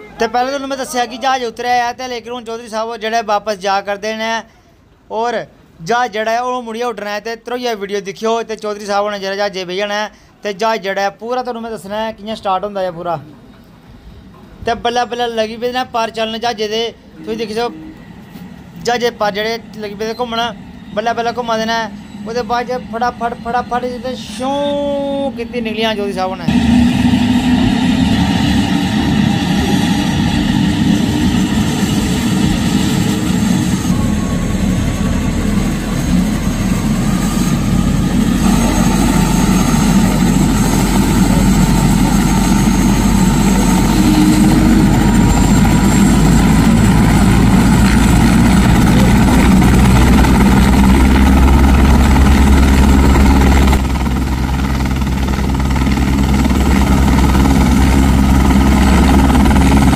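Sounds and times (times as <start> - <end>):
helicopter turbine whine: 13.4 - 59.9
low rotor rumble: 17.0 - 59.9.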